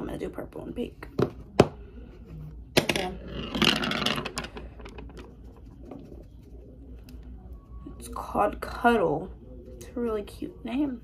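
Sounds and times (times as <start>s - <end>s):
brush rubbing on palette: 5.2s - 7.6s.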